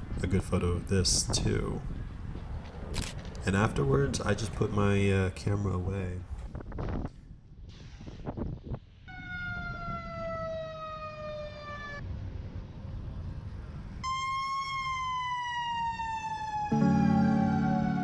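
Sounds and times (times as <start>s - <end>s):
low traffic rumble: 0.0s - 7.9s, 8.6s - 18.0s
fire engine siren wailing: 9.1s - 12.0s, 14.0s - 18.0s
music: 16.7s - 18.0s.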